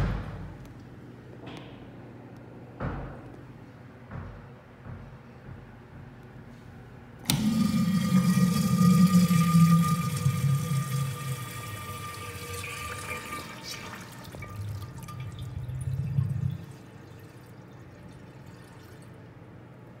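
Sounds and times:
urinal flushing with whistling tone: 7.3 - 19.2.

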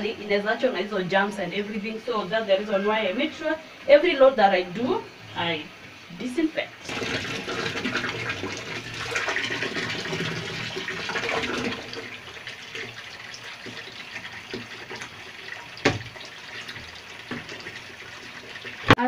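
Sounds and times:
water pouring into plastic tub: 6.8 - 19.0.

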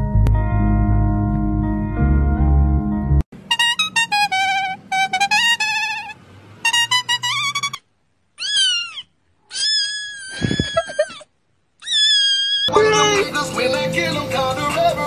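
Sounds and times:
kitten meowing: 8.4 - 13.3.

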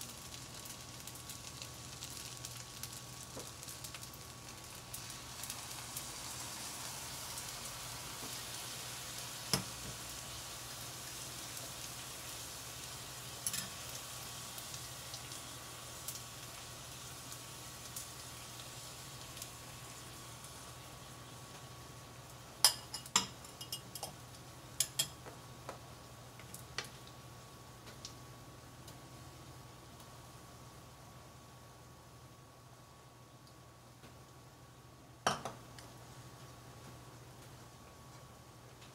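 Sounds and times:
pot sizzling on a stove: 0.0 - 38.9.

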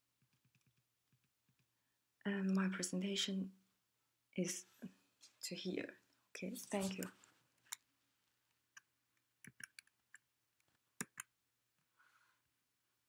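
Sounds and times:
soft rustle: 4.6 - 8.4.

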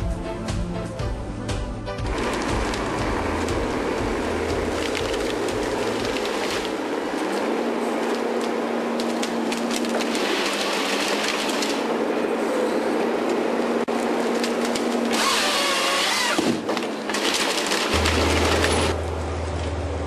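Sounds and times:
branches cracking: 2.0 - 12.2, 13.1 - 19.8
machine engine and hydraulics: 2.0 - 20.0
chain saw cutting wood: 8.1 - 11.9, 14.4 - 19.0.

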